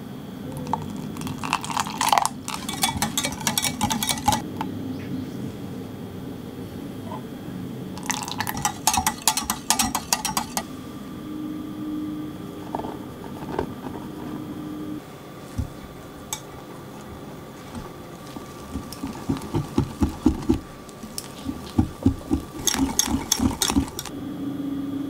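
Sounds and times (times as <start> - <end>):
faint steady hum: 0.0 - 25.0
whisk clinking against glass jug: 0.6 - 4.4, 8.0 - 10.7, 18.3 - 24.1.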